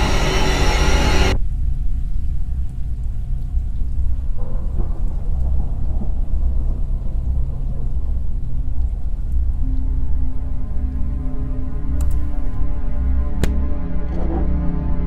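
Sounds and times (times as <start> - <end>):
rough bright noise layer: 0.0 - 1.4
deep continuous rumble: 0.0 - 15.0
faint steady drone: 0.0 - 15.0.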